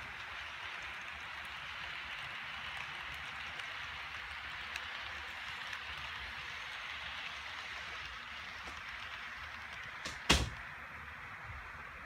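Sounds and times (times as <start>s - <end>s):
model train wheels rolling on rails: 0.0s - 12.0s
sharp knock: 10.1s - 10.6s.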